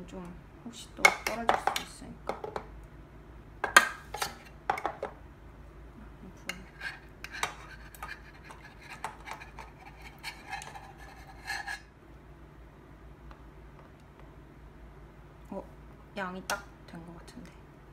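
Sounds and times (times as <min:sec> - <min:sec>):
metal spoon scraping metal trays: 0:06.5 - 0:11.9.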